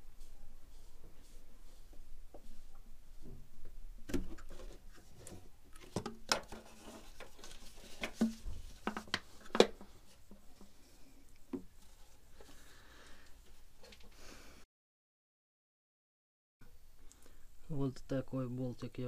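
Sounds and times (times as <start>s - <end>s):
hands handling hose: 2.3s - 12.6s.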